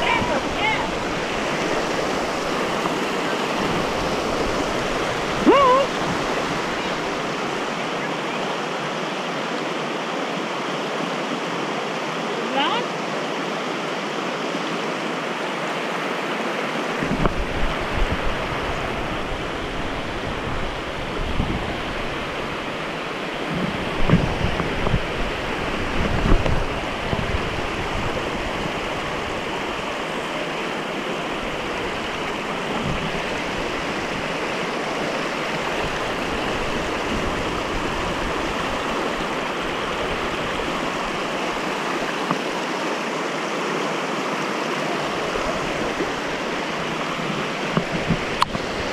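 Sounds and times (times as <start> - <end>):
stream rushing over boulders: 0.0 - 48.9
wind rumbling on microphone: 16.9 - 42.6, 44.9 - 48.9.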